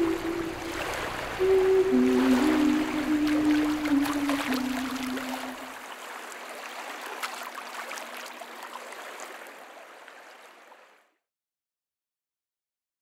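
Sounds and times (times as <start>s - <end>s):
low held music note: 0.0s - 5.7s
rushing water noise: 0.0s - 10.9s.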